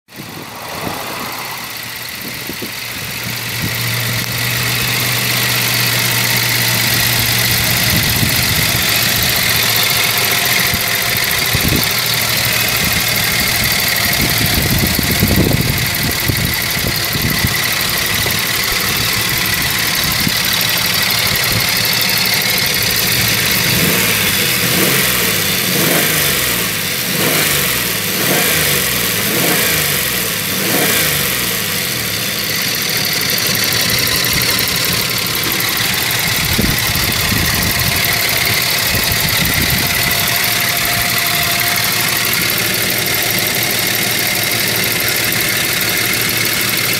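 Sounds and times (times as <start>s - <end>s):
car engine idling and revving: 0.0s - 46.9s.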